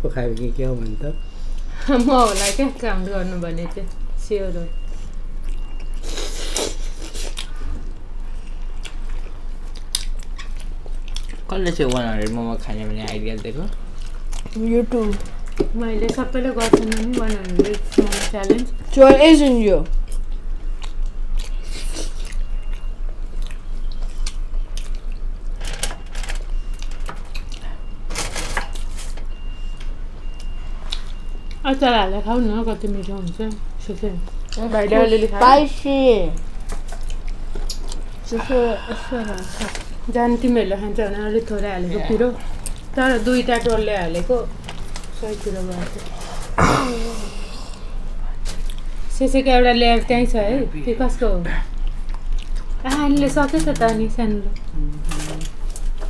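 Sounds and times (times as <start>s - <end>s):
people chewing food: 0.0s - 56.0s
low hum: 36.4s - 52.6s.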